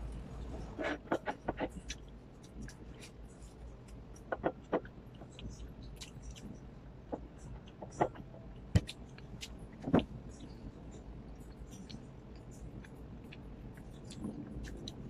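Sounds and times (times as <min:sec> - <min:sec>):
person chewing and lip smacking: 0:01.0 - 0:15.0.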